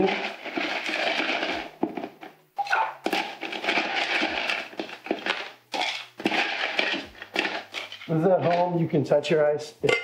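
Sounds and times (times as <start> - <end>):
ice cubes clinking in metal shaker: 0.0 - 1.7, 3.0 - 8.7.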